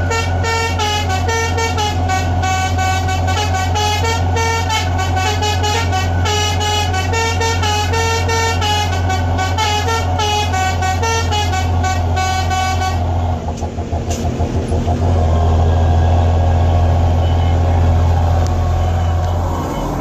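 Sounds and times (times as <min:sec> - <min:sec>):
musical truck horn tune: 0:00.0 - 0:13.4
truck engine drone: 0:00.0 - 0:20.0.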